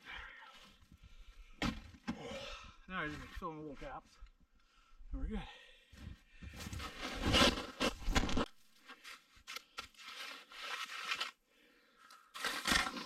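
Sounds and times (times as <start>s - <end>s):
snow crunching and scraping: 6.5s - 11.4s.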